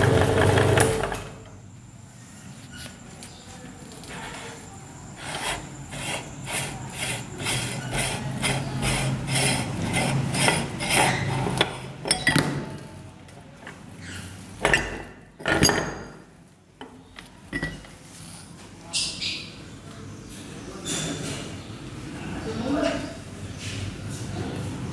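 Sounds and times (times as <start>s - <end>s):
metal-on-metal scraping: 5.2s - 12.4s.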